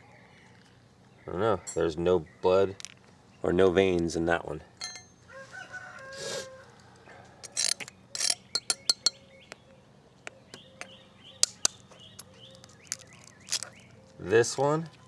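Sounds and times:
knife tapping and cracking eggshell: 8.2s - 9.2s.

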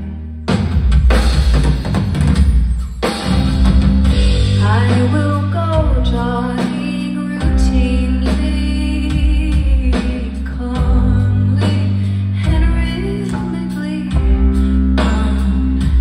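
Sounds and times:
bass notes: 0.0s - 1.6s, 3.2s - 16.0s
guitar: 0.0s - 16.0s
woman singing: 4.6s - 16.0s.

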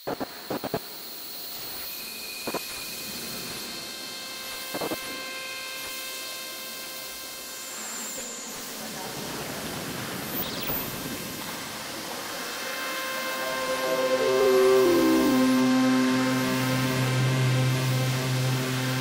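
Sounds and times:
thin high tones: 12.8s - 17.6s.

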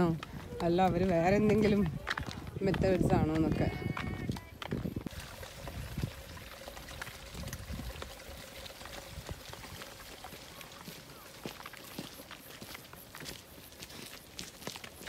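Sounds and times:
footsteps on concrete: 0.0s - 5.2s, 9.8s - 15.0s
water trickling in channel: 4.9s - 13.4s.

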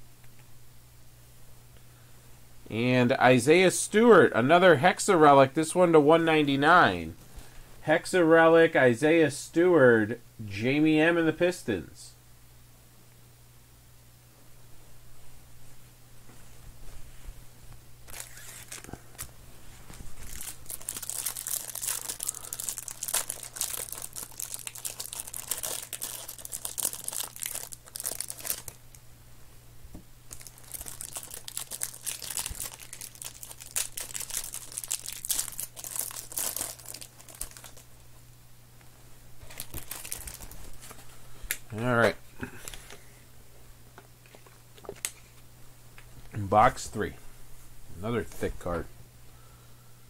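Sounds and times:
cellophane wrapper crinkling: 18.0s - 29.0s, 30.3s - 38.0s, 39.4s - 41.7s.

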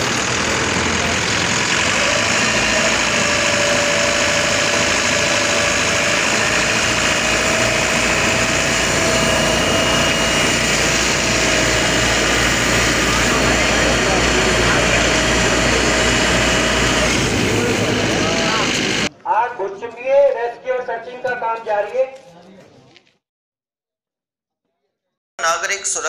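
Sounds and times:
pump engine running: 0.0s - 19.1s.

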